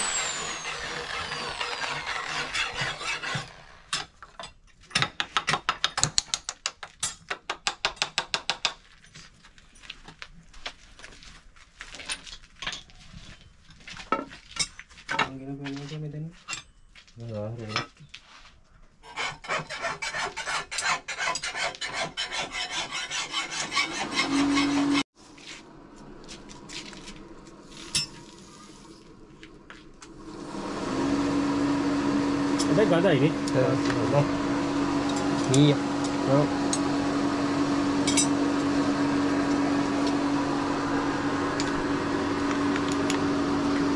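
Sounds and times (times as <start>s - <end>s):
hand file stroking metal: 0.0s - 3.9s, 19.0s - 25.1s
motor hum: 0.0s - 3.9s, 25.6s - 43.9s.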